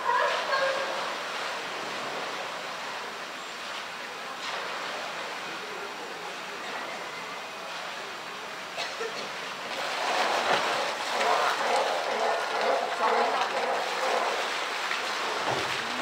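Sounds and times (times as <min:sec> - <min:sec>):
water jet splashing: 0:00.0 - 0:16.0
murmur of voices: 0:03.9 - 0:09.7.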